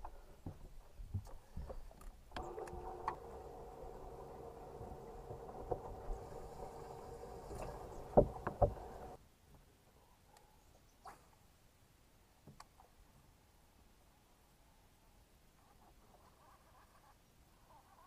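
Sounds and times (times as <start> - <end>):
boat motor humming: 2.3 - 9.2
knocks: 8.0 - 9.1.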